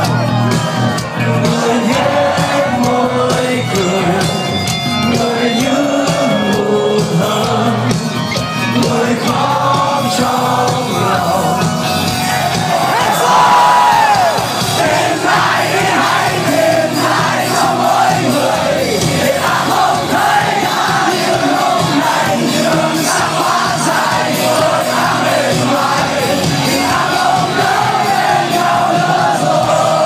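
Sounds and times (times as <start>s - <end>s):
crowd yelling and singing along: 0.0s - 30.0s
rock band playing loudly: 0.0s - 30.0s.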